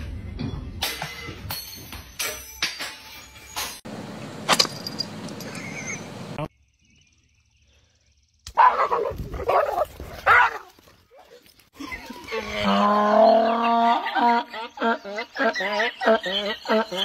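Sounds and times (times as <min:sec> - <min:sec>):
dogs barking: 0:08.5 - 0:11.4.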